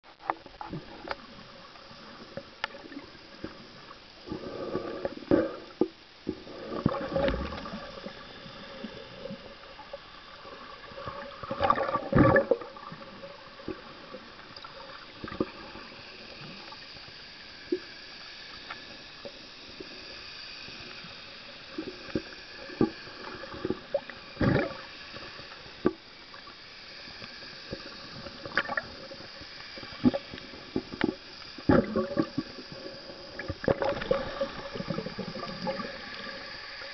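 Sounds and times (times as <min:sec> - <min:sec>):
muffled underwater hiss: 0:00.0 - 0:36.9
bubbling gurgles: 0:00.7 - 0:17.0, 0:21.7 - 0:25.3, 0:27.6 - 0:36.9.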